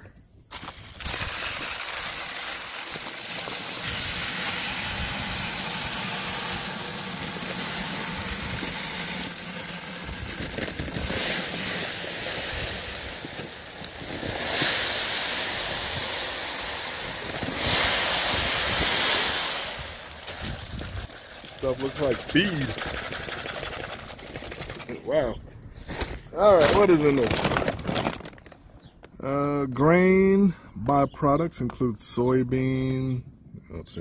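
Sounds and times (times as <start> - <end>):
pellets pouring into plastic hopper: 0.5 - 24.9, 26.4 - 28.5.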